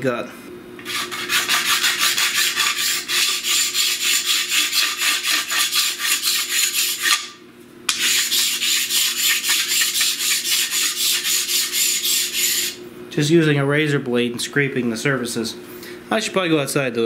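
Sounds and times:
razor blade scraping board: 0.8s - 12.8s.

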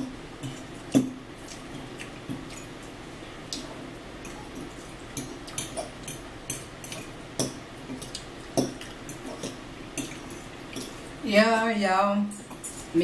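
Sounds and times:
cutlery clinking against bowls: 0.0s - 1.6s, 2.2s - 2.8s, 4.2s - 11.0s, 11.6s - 13.0s.

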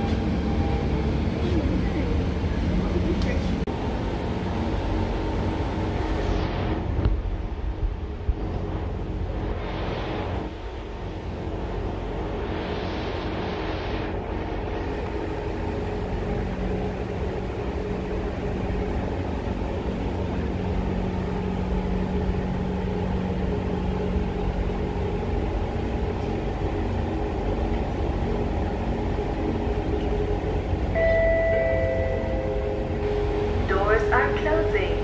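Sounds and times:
train equipment humming: 0.0s - 35.0s
low steady tone: 30.9s - 35.0s.

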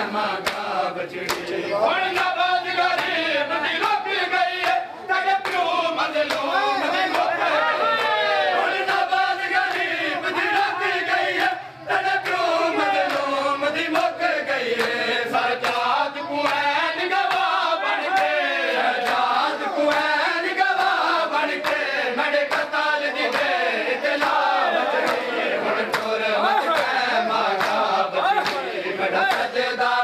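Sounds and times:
men chanting a lament: 0.0s - 30.0s
chest-beating slaps: 1.3s - 1.5s.

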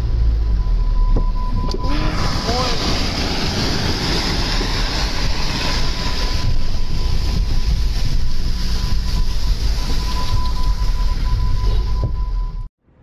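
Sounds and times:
deep rumble: 0.0s - 13.0s
rushing floodwater and rain: 1.8s - 12.2s.

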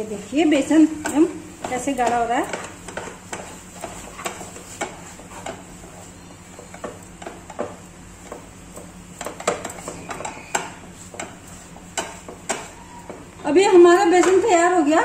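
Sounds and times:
spatula scraping frying pan: 0.6s - 14.6s.

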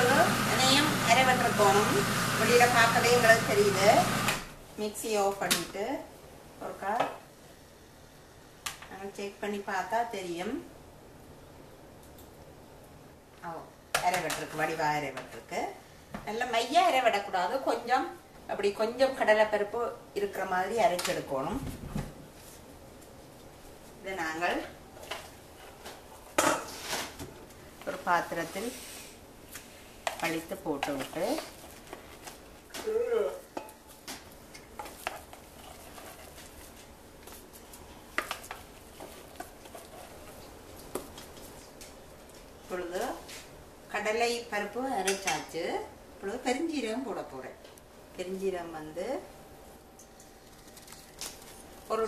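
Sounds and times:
spatula scraping a plastic bowl: 38.9s - 40.4s.

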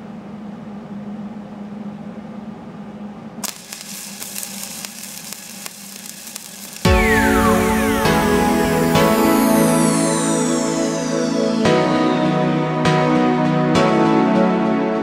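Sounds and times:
welding arc crackling and sizzling: 3.4s - 11.2s
welder hum: 3.4s - 12.6s
loud music: 6.9s - 15.0s.

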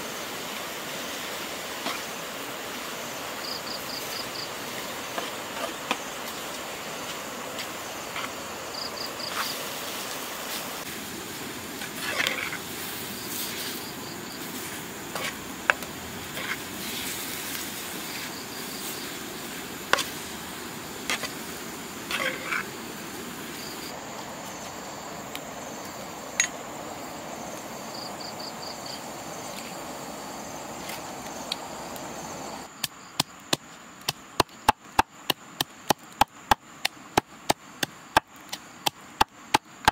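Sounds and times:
mushrooms sizzling in a pan: 8.6s - 23.9s.

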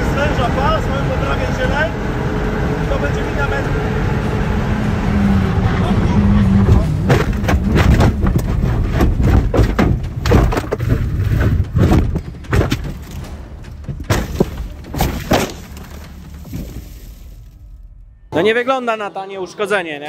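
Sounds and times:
low rumble: 0.0s - 18.4s
heavy thumps and bangs: 6.6s - 17.7s.

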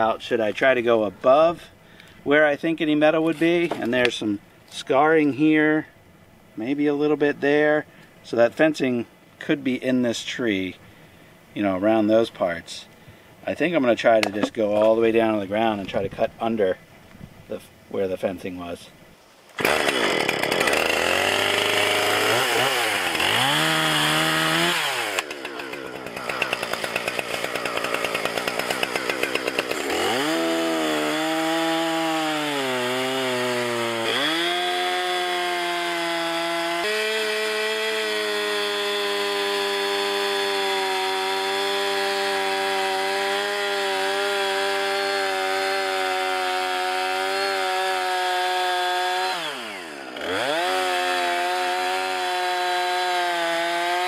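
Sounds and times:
chainsaw cutting wood: 19.6s - 54.0s.

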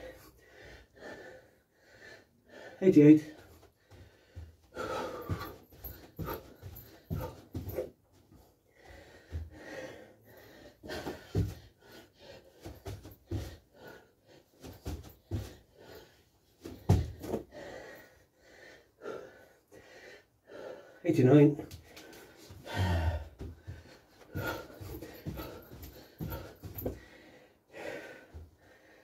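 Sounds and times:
man breathing hard: 0.0s - 21.0s, 21.6s - 29.0s
thuds of feet on carpeted floor: 3.4s - 9.8s, 10.8s - 11.8s, 12.5s - 13.9s, 14.6s - 16.0s, 16.6s - 17.6s, 21.7s - 27.1s.

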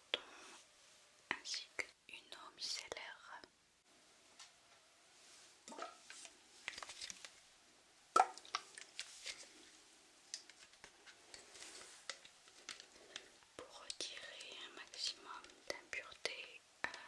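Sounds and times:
liquid plops: 5.7s - 6.0s, 8.2s - 8.9s
plastic bottle clicks and taps: 8.2s - 8.6s.

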